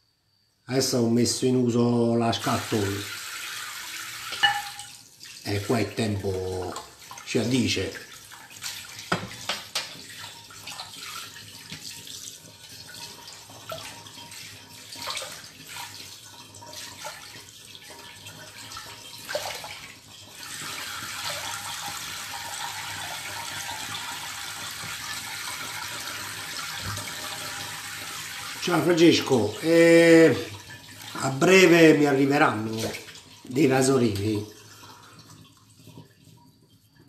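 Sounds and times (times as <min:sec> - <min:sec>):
water running into steel sink: 0:01.5 - 0:37.0
bowl knocking in sink: 0:04.3 - 0:04.9, 0:09.1 - 0:09.9.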